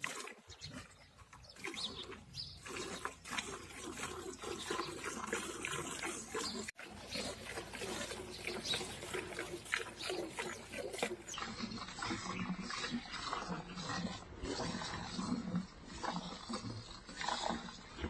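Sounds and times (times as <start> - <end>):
milk squirting into steel bucket: 1.6 - 14.0.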